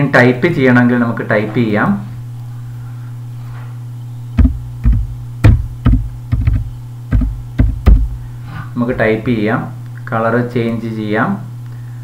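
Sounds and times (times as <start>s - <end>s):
low electrical hum: 0.0s - 12.0s
keyboard typing: 4.4s - 8.1s.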